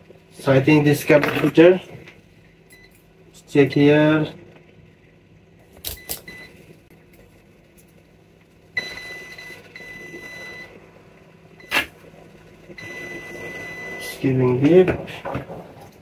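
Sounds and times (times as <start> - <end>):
multimeter high beep: 8.8 - 10.7, 12.8 - 14.2.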